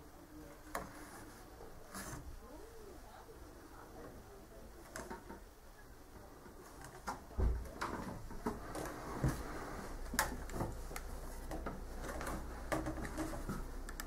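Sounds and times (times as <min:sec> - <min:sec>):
wooden ladder creaks and knocks: 0:06.8 - 0:10.8, 0:11.4 - 0:14.0.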